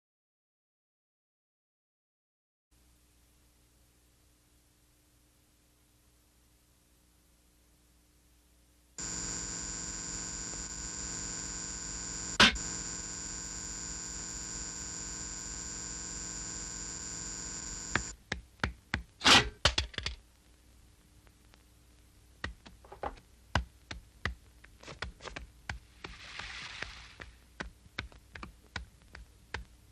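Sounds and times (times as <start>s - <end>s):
buzzing drone: 9.0s - 18.1s.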